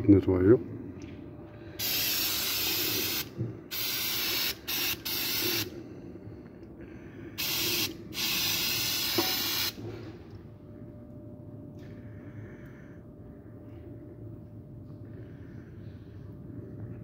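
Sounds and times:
aerosol can spraying: 0:01.8 - 0:05.7, 0:07.4 - 0:09.8.

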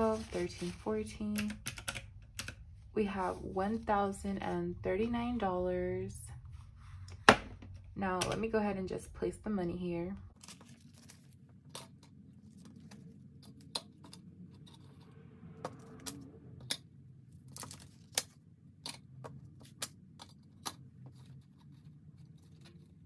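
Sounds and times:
banknotes rustling: 0:00.0 - 0:01.6, 0:10.3 - 0:15.1, 0:17.4 - 0:23.0
low steady hum: 0:00.0 - 0:23.0.

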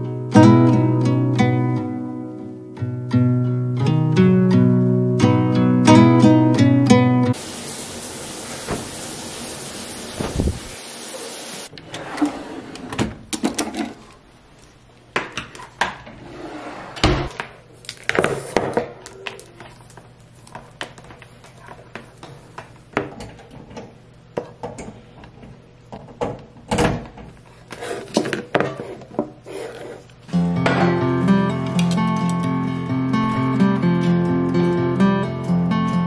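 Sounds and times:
clothes dropping onto floor: 0:10.2 - 0:10.6.

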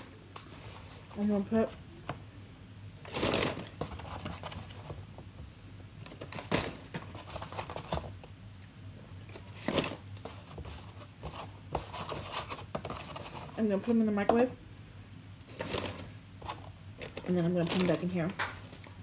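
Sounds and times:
takeout packaging crinkling: 0:03.0 - 0:04.9, 0:15.4 - 0:19.0.

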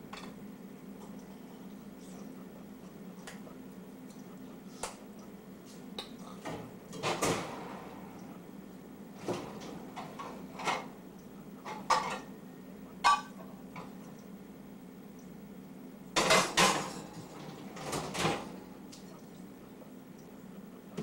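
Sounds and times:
faint low hum: 0:00.0 - 0:21.0
dishes and cutlery clinking: 0:11.7 - 0:12.3, 0:13.0 - 0:14.0.

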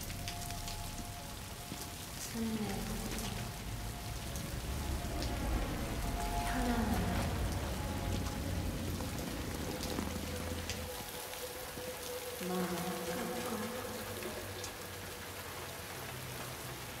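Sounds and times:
rain falling: 0:00.0 - 0:17.0.

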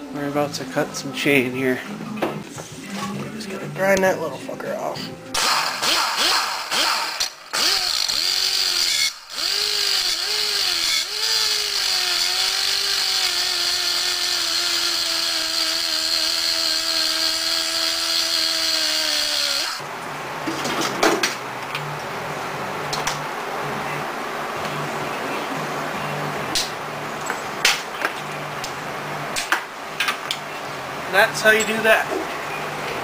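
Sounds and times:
grinder cutting steel chain: 0:05.4 - 0:19.8.

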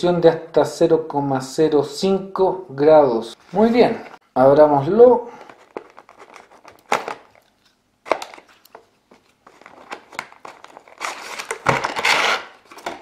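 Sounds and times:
plastic blister pack crackling: 0:05.4 - 0:13.0
plastic crinkling rustle: 0:05.4 - 0:13.0.

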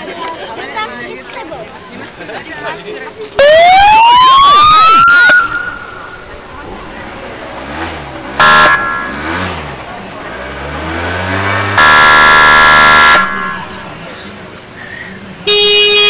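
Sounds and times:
car horn blasts: 0:08.4 - 0:09.3, 0:11.8 - 0:13.7, 0:15.5 - 0:16.0.

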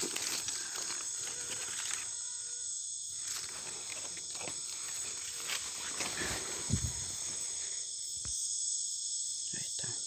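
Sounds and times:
rustling in dry leaves: 0:00.0 - 0:02.2, 0:03.1 - 0:07.7
insects chirping: 0:00.0 - 0:10.0.

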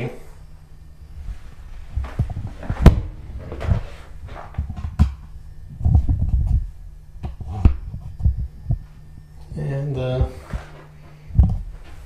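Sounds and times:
footsteps on carpeted stairs: 0:01.3 - 0:05.1.

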